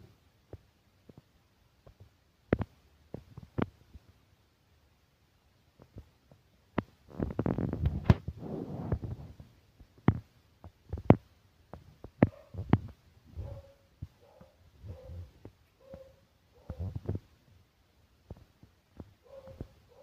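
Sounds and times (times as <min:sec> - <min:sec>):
soft clicks and thumps of handling: 0:00.4 - 0:04.2, 0:05.8 - 0:13.0, 0:18.2 - 0:19.8.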